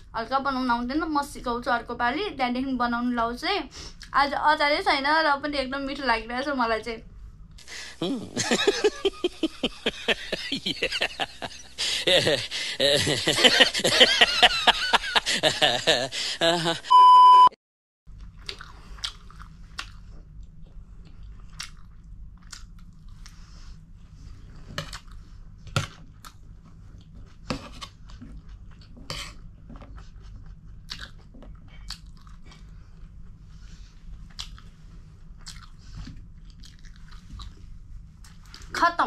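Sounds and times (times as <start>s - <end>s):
steady low hum: 0.0s - 17.5s
person chewing food: 18.2s - 23.4s, 24.8s - 33.4s, 34.1s - 38.7s.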